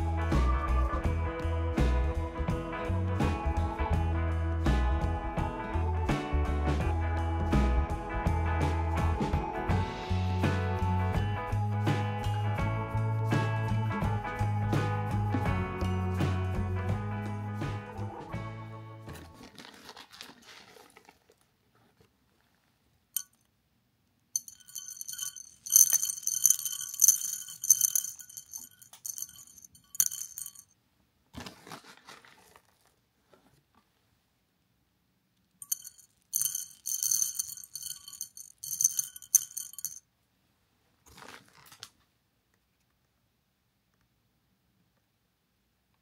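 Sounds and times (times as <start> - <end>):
dried beans rattling into dish: 24.4 - 30.7, 35.6 - 40.0.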